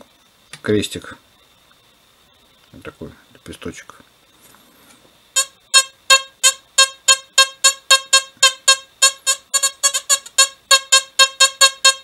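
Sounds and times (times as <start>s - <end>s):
metal detector buzzy beeps: 5.4s - 12.0s.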